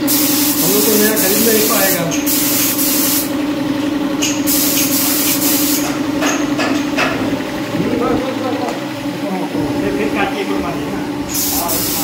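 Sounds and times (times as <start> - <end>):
spray gun hissing: 0.0 - 3.3, 4.4 - 5.9, 11.3 - 12.0
motor humming: 0.0 - 12.0.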